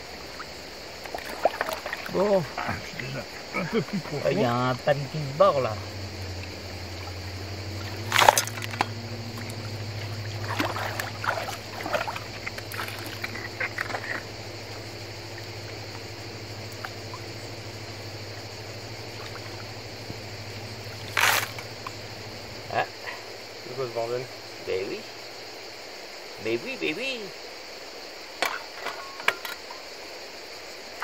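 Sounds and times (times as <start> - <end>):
river water sloshing and trickling: 0.0 - 26.4, 27.3 - 31.0
insect buzz: 0.0 - 31.0
shovel digging gravel: 21.1 - 21.6.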